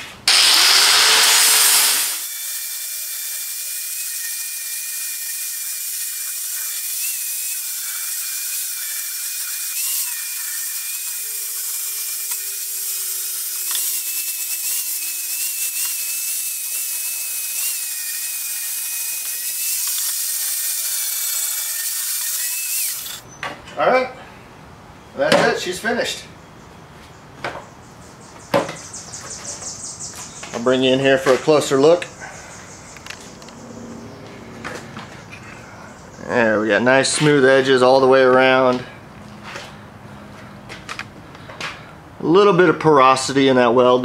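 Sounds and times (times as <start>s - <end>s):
grinder grinding metal: 0.0s - 23.2s.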